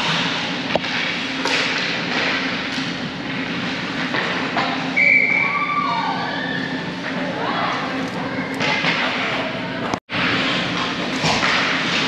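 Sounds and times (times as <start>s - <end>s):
ice rink background noise: 0.0s - 12.0s.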